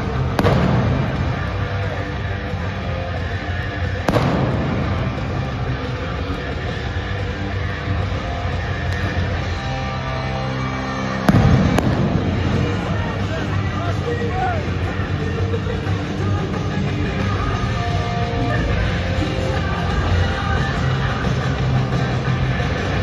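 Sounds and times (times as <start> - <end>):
loud arena music: 0.0 - 23.0
pyrotechnic blasts: 0.2 - 2.1, 4.0 - 6.2, 11.2 - 13.5.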